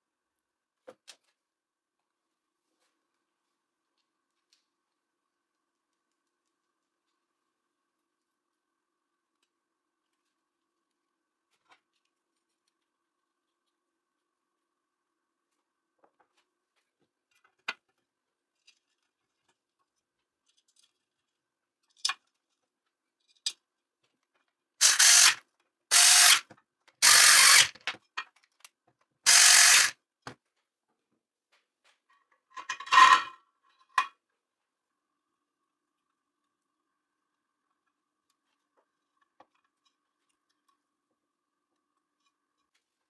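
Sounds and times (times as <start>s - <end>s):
electric screwdriver whirring: 24.8s - 27.8s, 29.3s - 29.9s.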